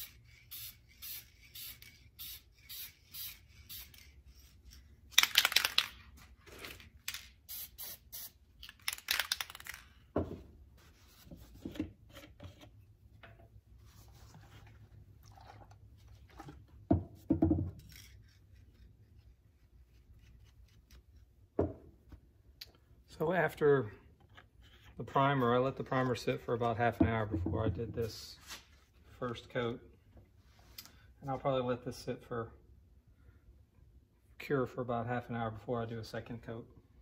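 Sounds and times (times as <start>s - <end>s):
aerosol spray can hissing: 0.0s - 4.1s, 7.5s - 8.4s
knocks on wooden workbench: 16.9s - 17.7s.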